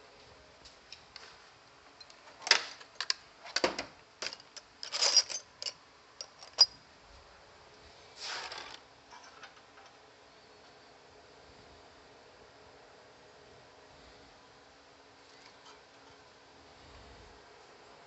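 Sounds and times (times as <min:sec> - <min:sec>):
metal drill bits clattering: 0:04.2 - 0:06.8
rustling scrape: 0:08.1 - 0:09.5.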